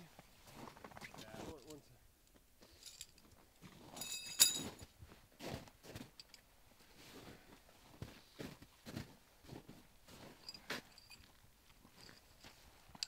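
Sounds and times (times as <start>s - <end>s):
sharp clink: 4.0s - 4.8s
boots crunching on snow: 7.1s - 10.8s.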